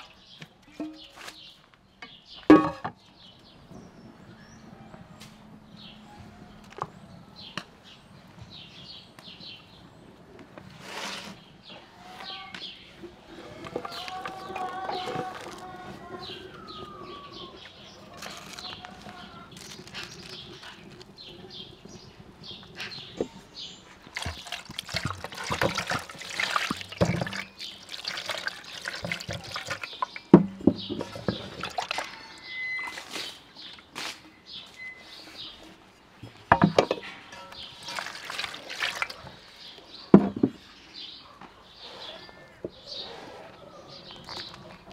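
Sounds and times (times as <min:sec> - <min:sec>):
birds chirping faintly: 0:00.0 - 0:44.9
knocks against metal basin: 0:02.5 - 0:03.0
hands rinsing potatoes in water: 0:22.6 - 0:32.2, 0:37.5 - 0:39.5
water pouring into metal basin: 0:24.0 - 0:30.3, 0:31.0 - 0:32.2, 0:37.5 - 0:39.3.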